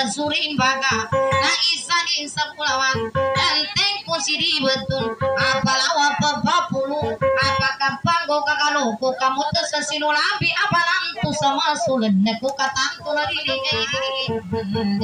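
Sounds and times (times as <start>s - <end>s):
plucked guitar notes: 0.0s - 15.0s
woman singing: 0.0s - 15.0s.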